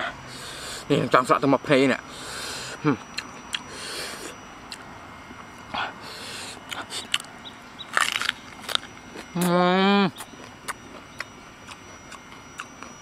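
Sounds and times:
man hissing sharp breaths: 0:00.0 - 0:00.9, 0:02.1 - 0:02.8, 0:03.7 - 0:04.4, 0:05.8 - 0:07.1
biting into raw banana: 0:07.9 - 0:12.7.

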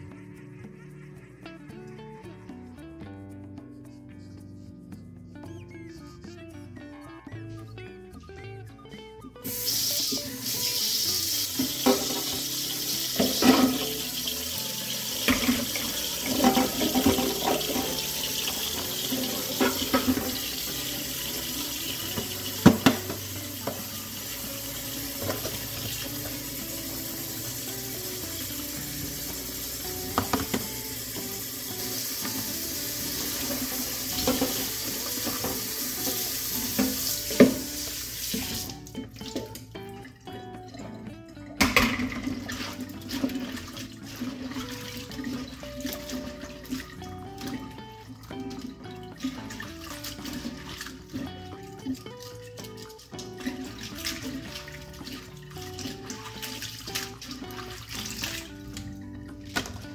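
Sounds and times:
tap water running into steel bowl: 0:09.4 - 0:40.2, 0:40.9 - 0:59.9
knocks and clatter of bowl: 0:11.6 - 0:12.4, 0:13.2 - 0:14.0, 0:15.3 - 0:18.1.

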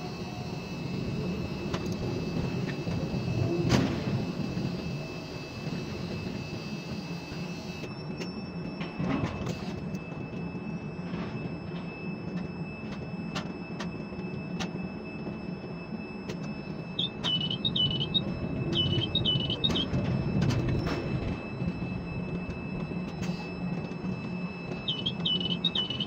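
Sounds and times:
low machine hum: 0:14.0 - 0:26.0
scattered clicks: 0:16.3 - 0:21.0, 0:24.7 - 0:26.0
warbling electronic beep: 0:16.6 - 0:26.0.

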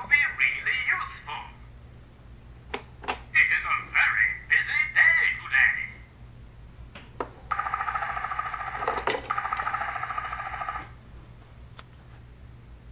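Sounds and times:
pulsing two-tone electronic ringing: 0:07.5 - 0:11.0.

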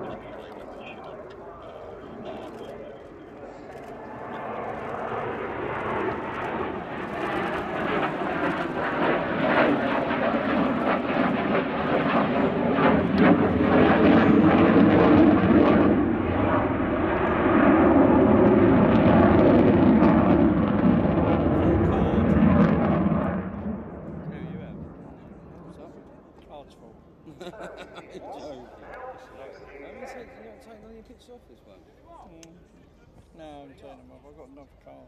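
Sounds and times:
fighter jet engine roar: 0:00.0 - 0:30.6.

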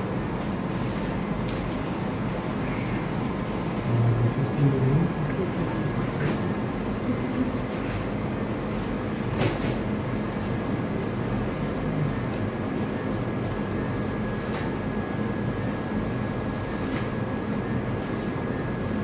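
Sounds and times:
ventilation hum and rumble: 0:00.0 - 0:19.0.

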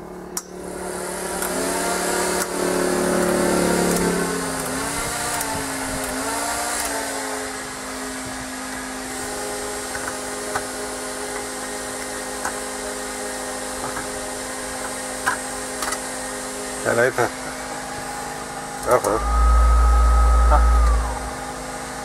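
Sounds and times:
motor whining: 0:18.7 - 0:21.6.

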